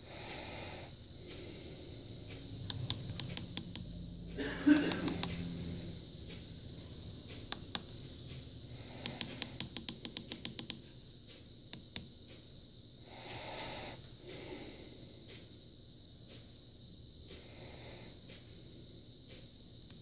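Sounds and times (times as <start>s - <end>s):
keypad buttons clicking: 2.7s - 3.8s, 4.8s - 5.4s, 9.0s - 10.8s.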